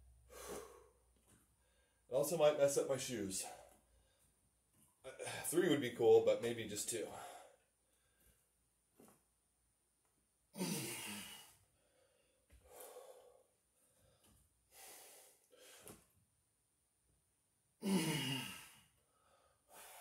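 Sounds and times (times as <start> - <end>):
man breathing heavily: 0.2 - 2.1, 7.1 - 8.4, 10.6 - 16.0, 17.8 - 20.0.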